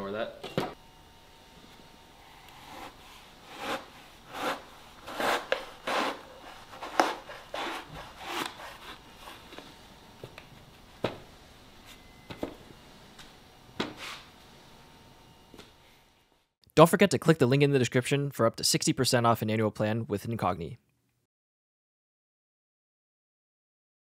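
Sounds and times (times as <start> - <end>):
knife slicing paper towels: 3.5 - 9.0.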